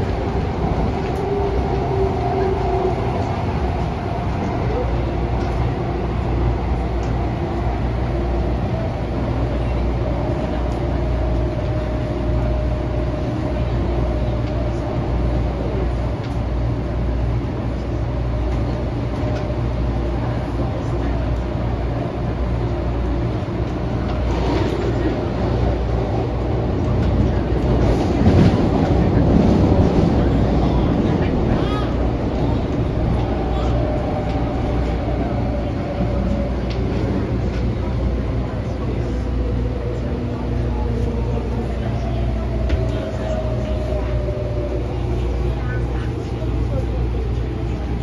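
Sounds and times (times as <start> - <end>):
train running on board: 0.0 - 48.0.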